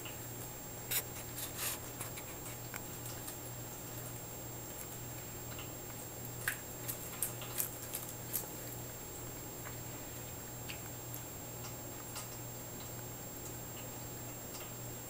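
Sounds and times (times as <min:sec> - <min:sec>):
steady low hum: 0:00.0 - 0:15.0
cat licking and chewing: 0:01.0 - 0:09.8.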